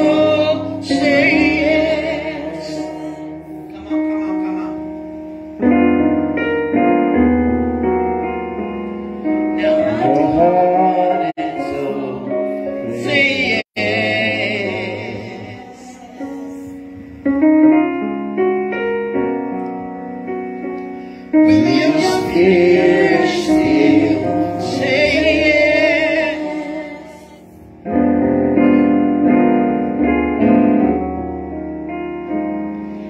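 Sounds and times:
women singing gospel: 0.0s - 3.6s, 9.6s - 17.1s, 21.4s - 27.6s
keyboard chords: 0.0s - 33.0s.

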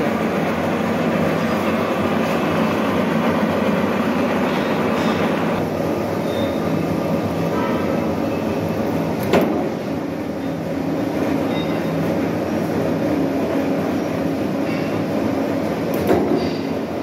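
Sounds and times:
metal lathe running: 0.0s - 6.1s.

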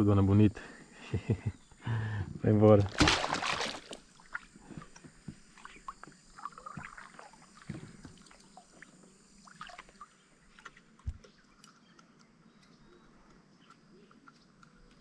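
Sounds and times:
light taps and knocks on kayak: 10.7s - 11.4s.

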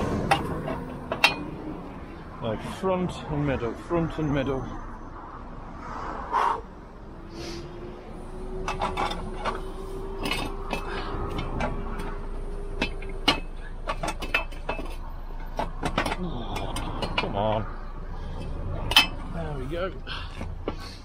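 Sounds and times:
metal clicks and clanks: 0.0s - 1.9s, 8.6s - 17.7s, 18.3s - 19.5s.

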